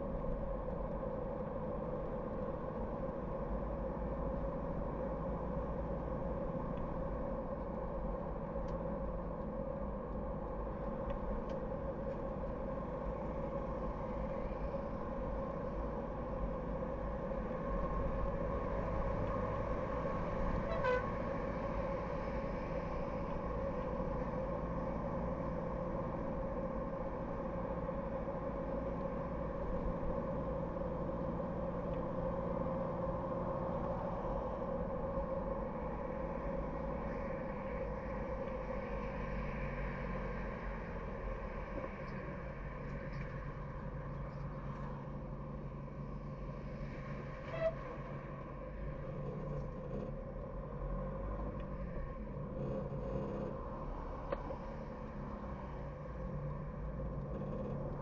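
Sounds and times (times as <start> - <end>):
car driving on road: 0.0 - 58.0
car horn toot: 20.6 - 21.1, 47.5 - 47.8.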